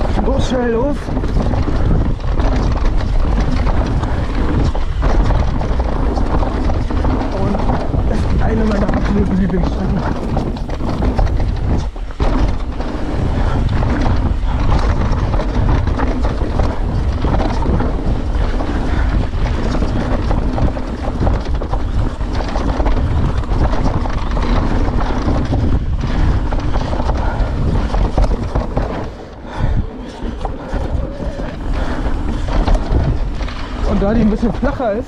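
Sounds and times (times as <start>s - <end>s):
tyres rumbling over dirt: 0.0s - 35.0s
wind buffeting microphone: 0.0s - 35.0s.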